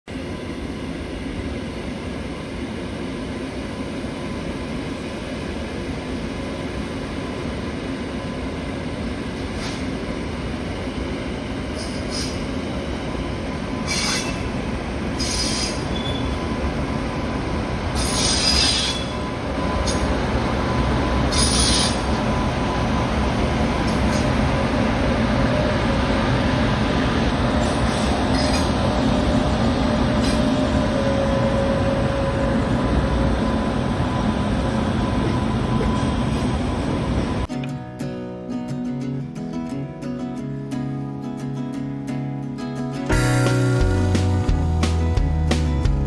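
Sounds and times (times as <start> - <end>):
train passing low rumble: 0.1 - 37.5, 43.1 - 46.0
high-pitched wheel squeals: 13.8 - 14.5, 15.2 - 16.4.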